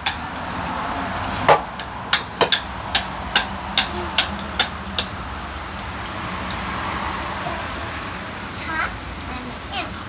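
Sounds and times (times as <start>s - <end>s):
knocks on a cooking pot: 1.5s - 5.1s.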